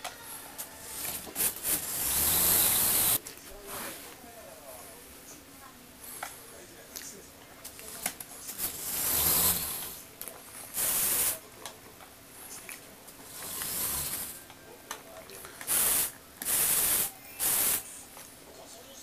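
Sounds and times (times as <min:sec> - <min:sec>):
toy electric motor whirring: 0:00.0 - 0:03.2, 0:08.0 - 0:10.0, 0:10.7 - 0:11.4, 0:13.3 - 0:14.4, 0:15.6 - 0:18.0.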